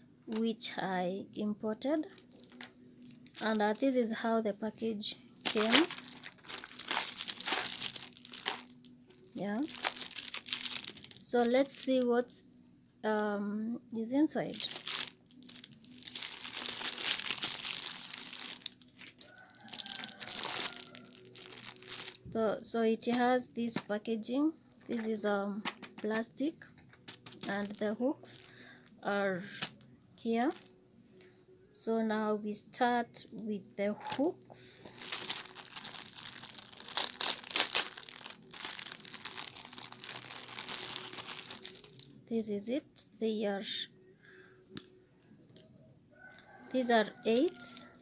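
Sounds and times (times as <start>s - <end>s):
plastic packaging crinkling: 2.0s - 4.0s, 5.4s - 12.3s, 14.4s - 22.3s, 26.8s - 30.7s, 34.8s - 42.2s, 47.0s - 48.0s.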